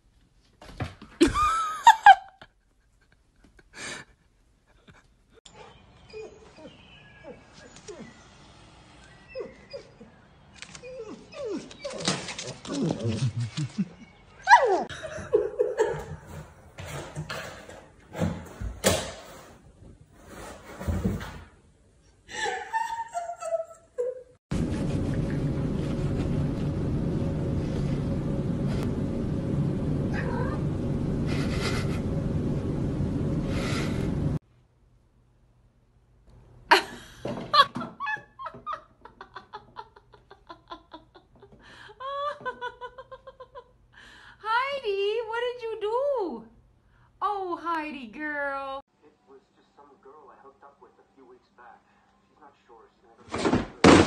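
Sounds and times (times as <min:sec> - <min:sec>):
dog whimpering: 0:06.1 - 0:08.2, 0:09.3 - 0:13.2.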